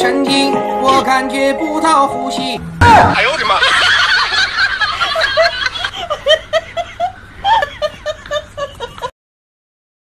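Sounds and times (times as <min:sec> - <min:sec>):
high-pitched laughter: 0:03.3 - 0:09.1.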